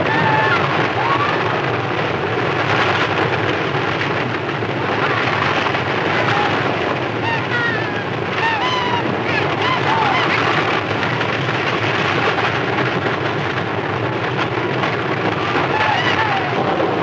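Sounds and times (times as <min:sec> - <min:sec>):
people shouting: 0:00.0 - 0:01.8, 0:06.0 - 0:10.5, 0:15.4 - 0:16.8
galloping horses and wagons: 0:00.0 - 0:17.0.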